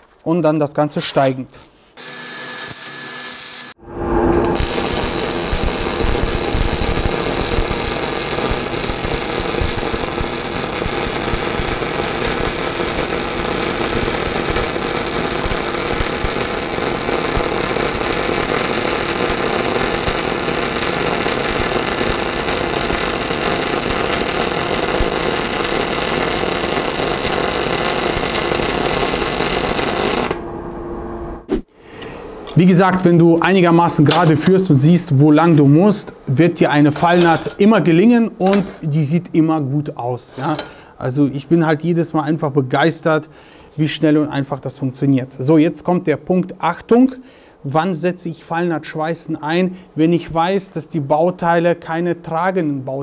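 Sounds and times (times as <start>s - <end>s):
welding arc sizzling crackle: 2.0s - 30.5s.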